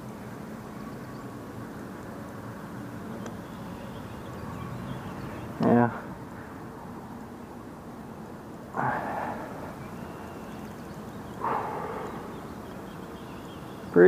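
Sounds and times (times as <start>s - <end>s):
breathy exhales: 8.7s - 9.8s, 11.4s - 12.5s.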